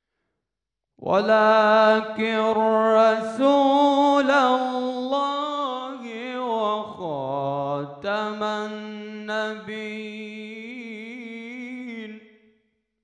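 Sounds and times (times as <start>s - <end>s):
man chanting melodically: 1.0s - 12.2s.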